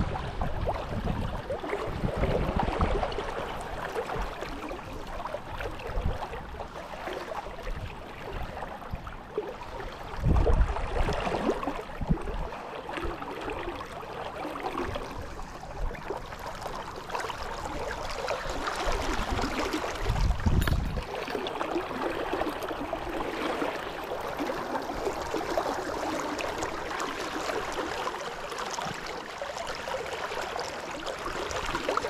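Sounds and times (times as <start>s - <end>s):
brook water running: 0.0s - 32.0s.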